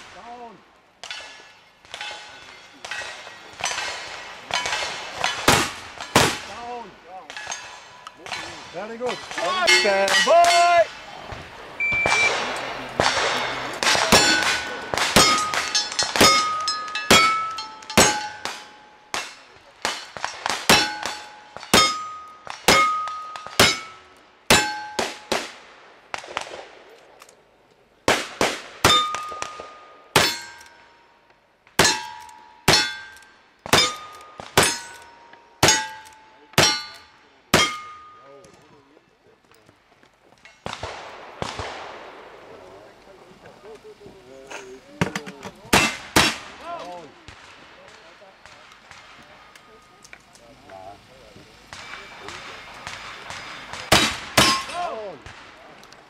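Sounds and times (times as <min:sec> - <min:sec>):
gunshots: 0:00.0 - 0:27.0, 0:28.1 - 0:30.8, 0:40.6 - 0:42.8, 0:45.6 - 0:49.5, 0:51.7 - 0:55.8
ringing steel target: 0:01.0 - 0:06.3, 0:07.2 - 0:10.9, 0:11.8 - 0:25.4, 0:28.8 - 0:31.2, 0:31.8 - 0:38.6, 0:51.7 - 0:55.1.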